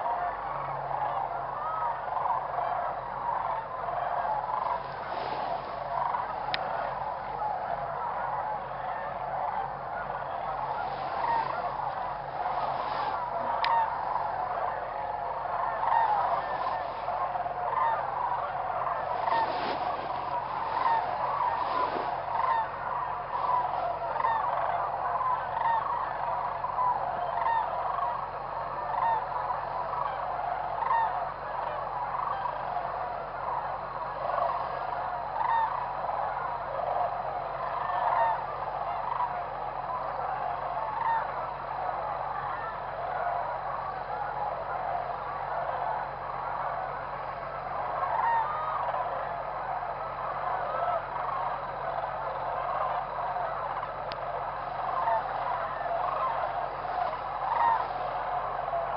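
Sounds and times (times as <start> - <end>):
flock of geese honking: 0.0 - 58.9.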